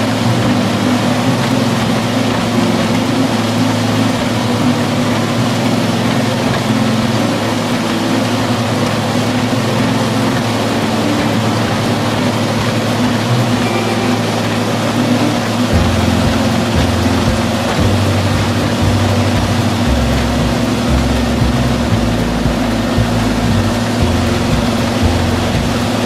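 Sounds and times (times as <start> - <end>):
heavy engine droning: 0.0 - 26.0.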